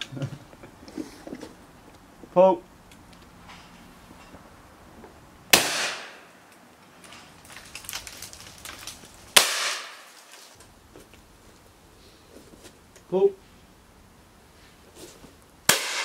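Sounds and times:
shotgun shots: 0:05.5 - 0:06.3, 0:09.4 - 0:10.1, 0:15.7 - 0:16.0.

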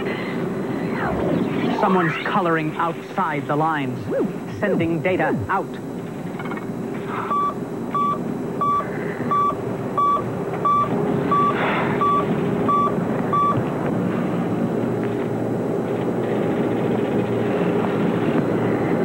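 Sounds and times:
low hum: 0:00.0 - 0:19.0
short electronic beeps: 0:07.3 - 0:13.6.

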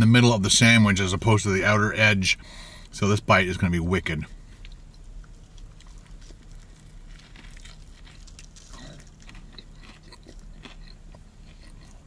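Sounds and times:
man chewing crispy food: 0:04.4 - 0:12.0.

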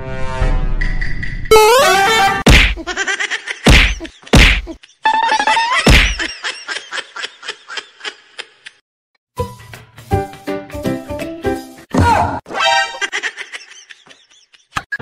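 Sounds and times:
heavy whacks and thumps: 0:02.5 - 0:02.9, 0:03.7 - 0:04.8, 0:05.9 - 0:06.3.

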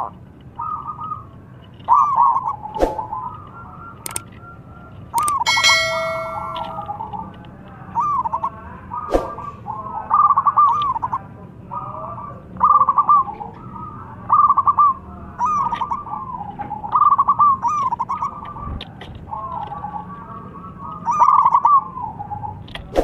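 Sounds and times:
dove cooing song: 0:00.0 - 0:07.2, 0:07.9 - 0:22.8
sharp click: 0:04.0 - 0:04.2, 0:05.2 - 0:06.8.

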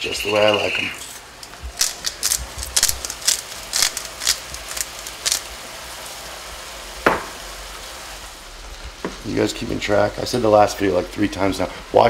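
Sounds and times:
meat sizzling in frying pan: 0:01.2 - 0:09.2
salt grinder grinding: 0:01.5 - 0:05.5.

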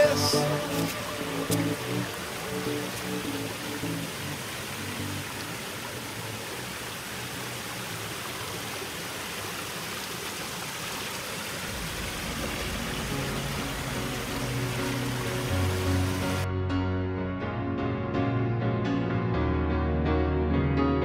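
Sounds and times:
background music: 0:00.0 - 0:05.4, 0:11.8 - 0:21.0
rushing water: 0:00.0 - 0:16.5.

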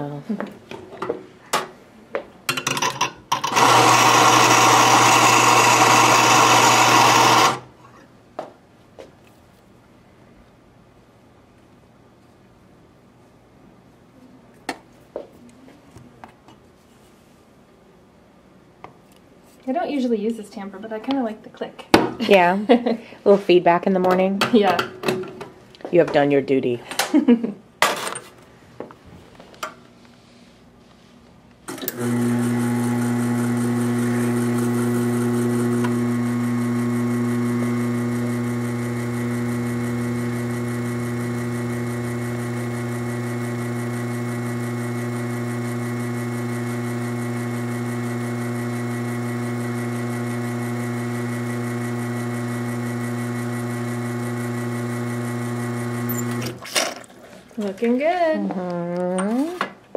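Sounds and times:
espresso machine pump humming: 0:03.3 - 0:07.6, 0:31.7 - 0:56.6.

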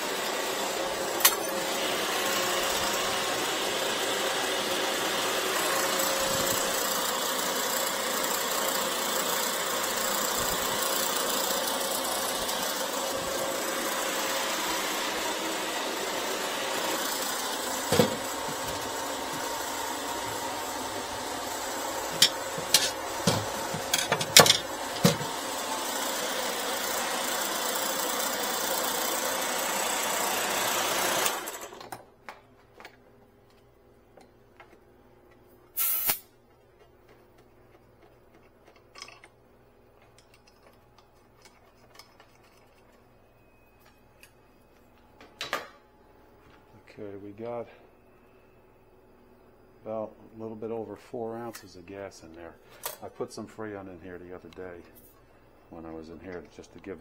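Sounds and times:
machine running steadily: 0:00.0 - 0:31.8.

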